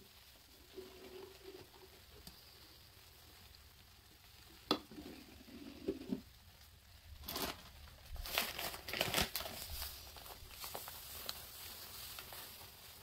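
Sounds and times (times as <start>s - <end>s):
plastic bag crinkling: 7.0s - 13.0s.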